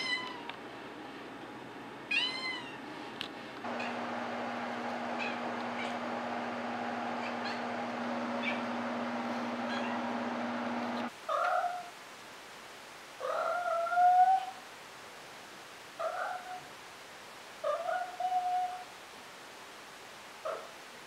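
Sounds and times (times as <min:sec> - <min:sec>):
steady hum: 0:03.6 - 0:11.1.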